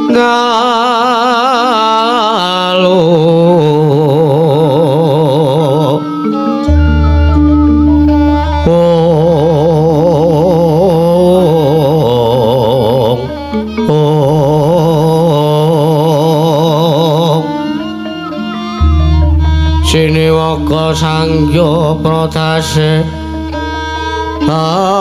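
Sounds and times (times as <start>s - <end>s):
person singing ornamented phrases: 0.0s - 23.6s, 24.4s - 25.0s
gamelan music: 5.9s - 9.4s, 16.8s - 24.5s
deep low hum: 6.7s - 8.7s, 18.8s - 21.6s.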